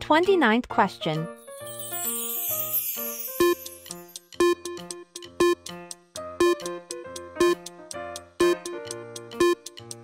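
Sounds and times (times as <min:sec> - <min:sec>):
background music with steady beat: 0:03.0 - 0:10.0.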